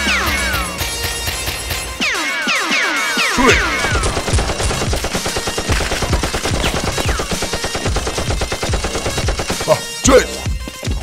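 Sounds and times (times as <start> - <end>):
automatic gunfire: 3.4 - 9.8.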